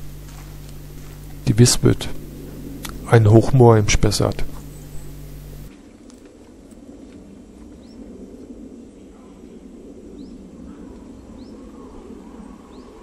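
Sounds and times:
low rumbling noise: 0.0 - 5.7
high rising bird calls: 4.5 - 5.7.

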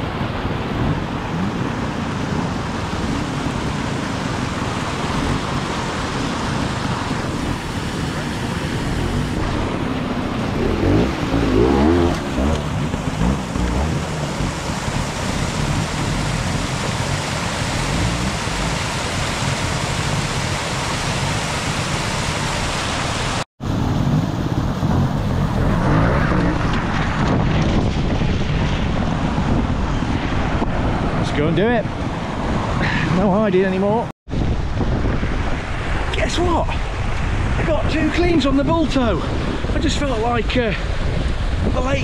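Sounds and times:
wind on microphone: 0.0 - 33.4, 34.0 - 42.0
motorcycle engine revving: 0.7 - 20.6
stream rushing over rocks: 0.8 - 23.4.

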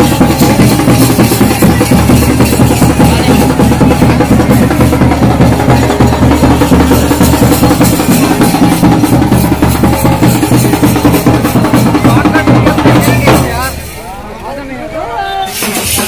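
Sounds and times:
fast driving drum beat: 0.0 - 14.2, 15.3 - 16.0.

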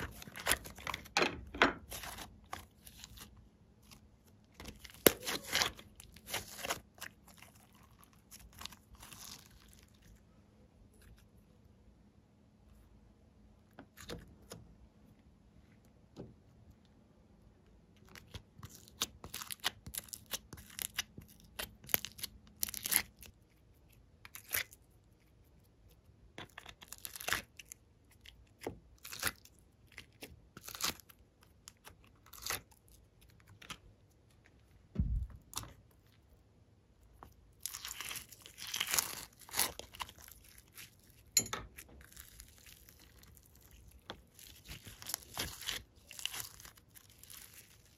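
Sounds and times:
slime squished by hand: 1.8 - 10.1
slime crackling: 1.8 - 10.2, 42.1 - 47.9
dull thump: 34.9 - 35.4.

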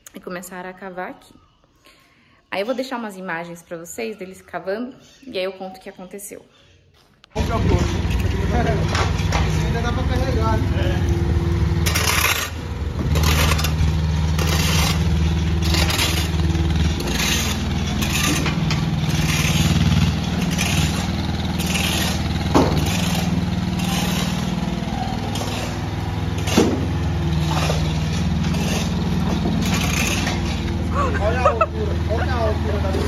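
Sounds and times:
excavator bucket scraping: 7.4 - 32.1
excavator diesel engine running: 7.4 - 33.0
sharp knocks: 22.5 - 23.0.

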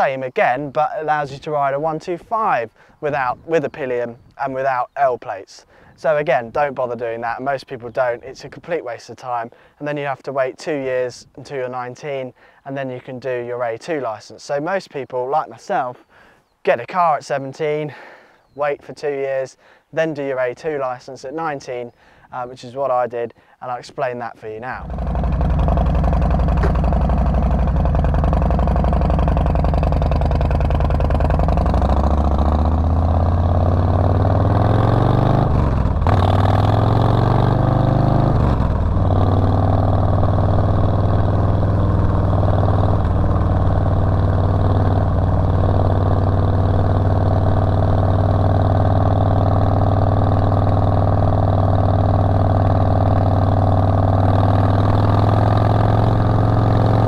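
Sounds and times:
motorcycle engine accelerating: 24.8 - 57.0.

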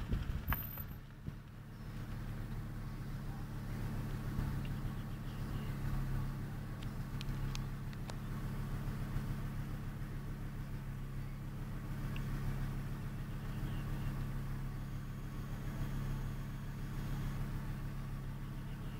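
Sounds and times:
vehicle engine idling: 0.0 - 18.9
faint sharp clicks: 4.6 - 4.8, 6.8 - 8.2, 12.1 - 12.3.

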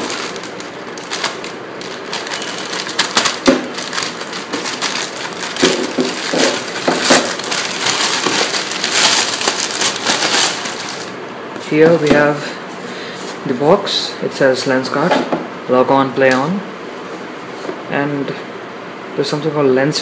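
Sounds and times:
plastic bag crinkling: 0.0 - 11.2
plastic bag tearing: 0.0 - 11.2.

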